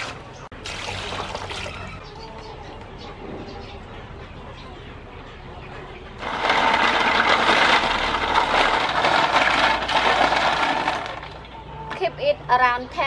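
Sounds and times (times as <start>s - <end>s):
water churning: 0.0s - 2.0s
snail shells clattering in metal basin: 6.2s - 11.5s.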